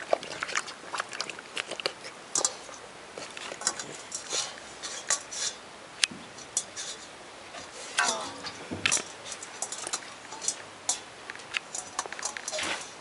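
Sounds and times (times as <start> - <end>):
water sloshing in bowl: 0.0 - 5.6, 6.3 - 13.0
metal bowl clinking and knocking: 8.0 - 12.6.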